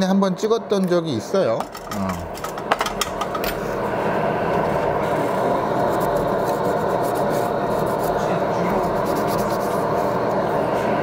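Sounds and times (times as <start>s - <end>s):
blower rushing: 3.0s - 11.0s.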